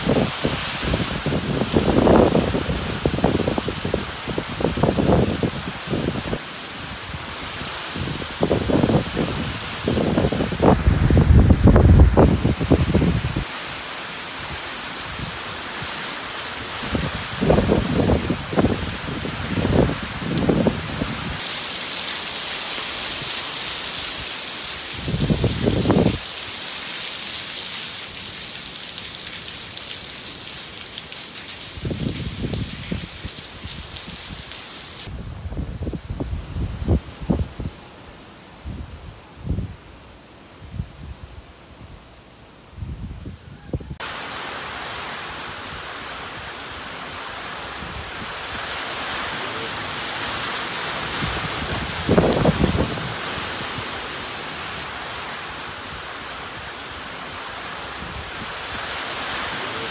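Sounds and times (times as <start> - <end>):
wind gusts buffeting microphone: 0.0 - 13.5, 16.5 - 21.4, 24.1 - 26.2, 31.7 - 34.4, 35.0 - 37.8, 47.6 - 55.0
heavy rain pouring: 0.0 - 35.2, 43.8 - 59.9.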